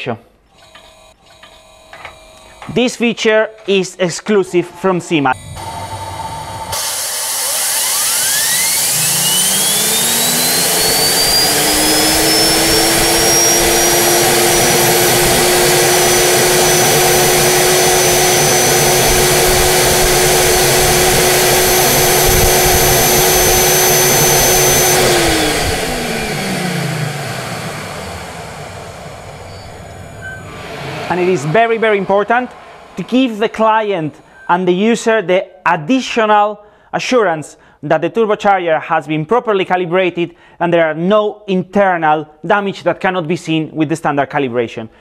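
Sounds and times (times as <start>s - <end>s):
turbocharger high whine: 4.6s - 34.4s
rushing air: 10.2s - 33.1s.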